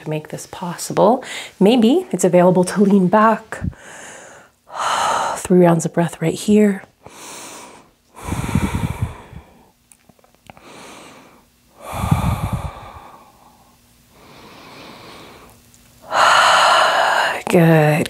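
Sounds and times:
woman breathing deeply: 1.2 - 1.6, 3.6 - 5.4, 7.0 - 9.8, 10.5 - 17.5.

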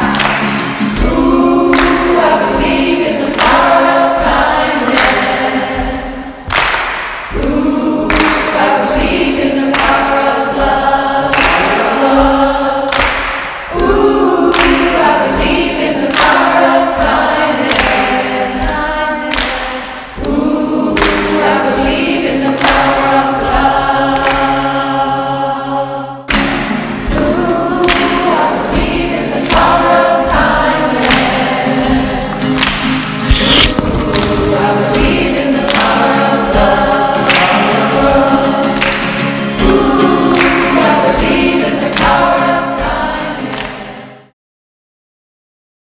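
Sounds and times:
choir singing: 0.0 - 44.3
steady beat: 26.4 - 38.6.

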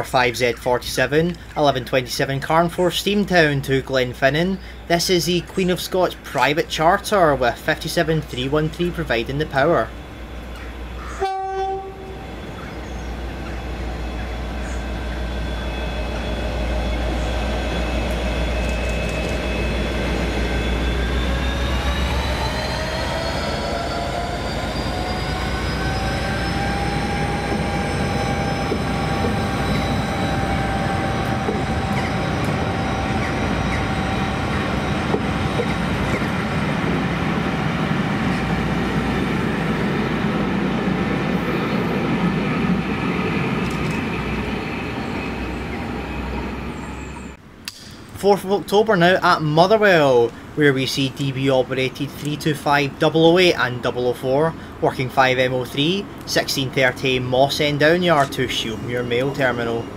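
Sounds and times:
diesel locomotive engine rumble: 0.0 - 59.9
train coaches rolling past: 0.0 - 59.9
turbocharger whine: 2.3 - 47.5
locomotive horn blast: 11.0 - 16.2.

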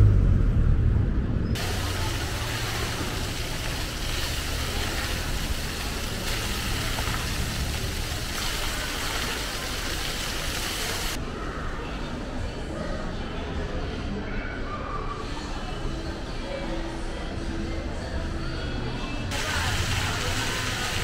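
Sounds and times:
rumble of passing vehicles: 0.0 - 8.4
even hiss: 1.6 - 11.2.

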